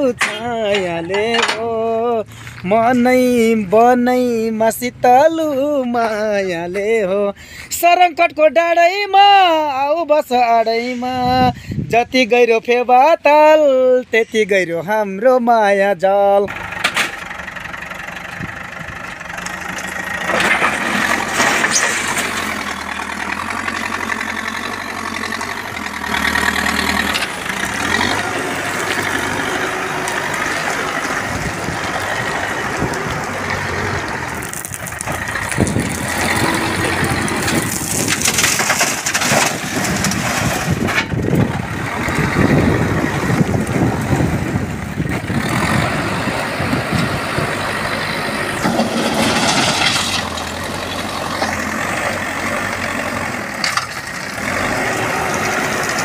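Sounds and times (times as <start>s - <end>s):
diesel engine under load: 0.0s - 56.0s
stones scraping steel bucket: 20.2s - 22.7s, 48.6s - 50.5s.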